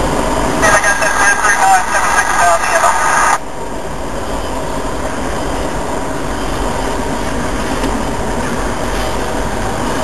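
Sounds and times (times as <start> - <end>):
freight train wheels on rails: 3.4 - 10.0.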